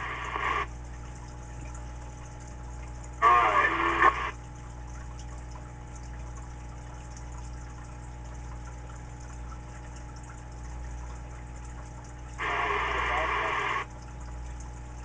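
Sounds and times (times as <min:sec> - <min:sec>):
radio static hiss: 0:00.0 - 0:00.7, 0:03.2 - 0:04.4, 0:12.4 - 0:13.9
tinny audio from radio speaker: 0:00.0 - 0:00.7, 0:03.2 - 0:04.4, 0:12.4 - 0:13.9
mains hum: 0:00.0 - 0:04.5, 0:12.2 - 0:15.0.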